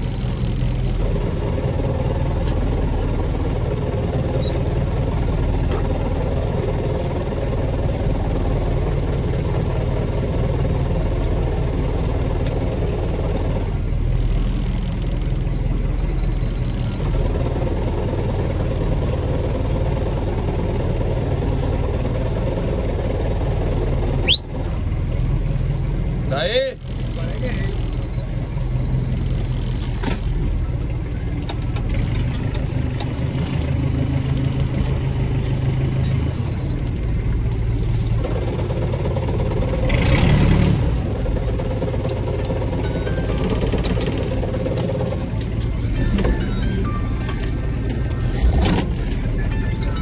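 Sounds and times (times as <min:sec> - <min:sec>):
engine humming: 0:00.0 - 0:50.0
short rising chirp: 0:24.2 - 0:26.2.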